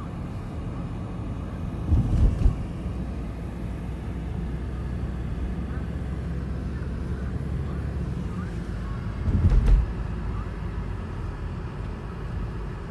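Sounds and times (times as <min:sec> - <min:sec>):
car engine and tyres rumbling: 0:00.0 - 0:12.9
low thump: 0:09.2 - 0:10.0.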